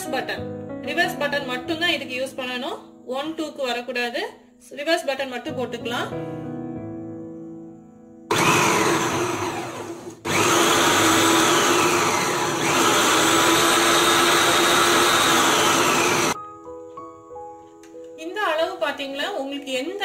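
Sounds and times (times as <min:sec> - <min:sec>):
mixer grinder motor chopping: 0:08.3 - 0:16.4.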